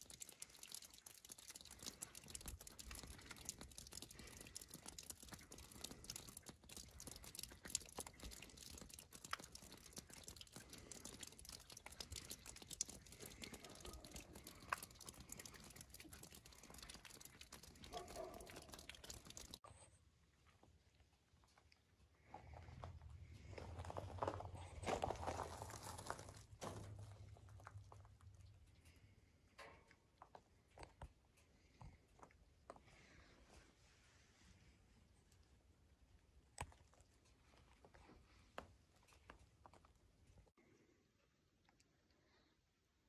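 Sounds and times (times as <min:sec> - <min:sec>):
crackling patter of falling snow: 0:00.0 - 0:19.6, 0:23.4 - 0:29.8.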